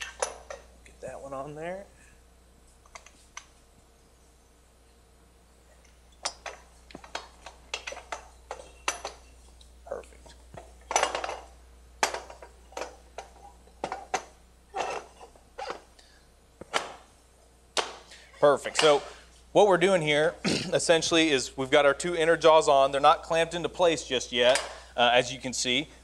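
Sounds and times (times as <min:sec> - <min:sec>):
metal clanks and clinks: 0:00.0 - 0:00.7, 0:05.8 - 0:09.4, 0:10.2 - 0:15.9.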